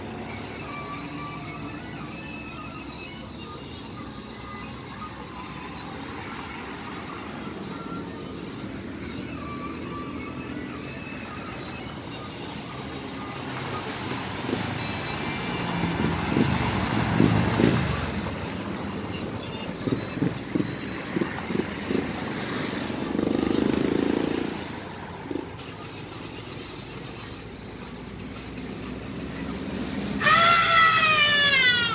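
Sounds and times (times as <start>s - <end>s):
road traffic passing: 0.0s - 31.9s
high-pitched voice calling out: 30.2s - 31.9s.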